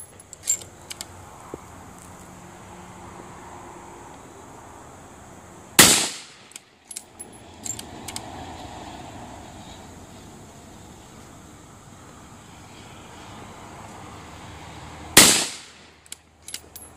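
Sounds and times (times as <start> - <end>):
rifle shot: 5.8 - 6.4, 15.2 - 15.8.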